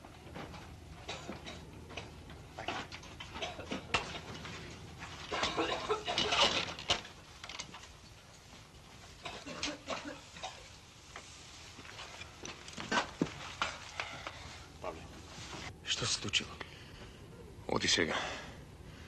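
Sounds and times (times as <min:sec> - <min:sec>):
shuffling footsteps: 0:00.0 - 0:05.7, 0:10.2 - 0:15.7
clothes rustling: 0:02.5 - 0:15.7.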